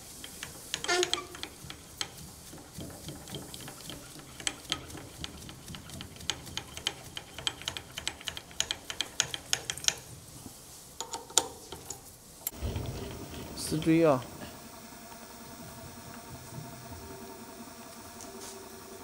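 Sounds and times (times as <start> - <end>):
light mechanical clicks: 0.0 - 10.1
faint low hum: 11.7 - 19.0.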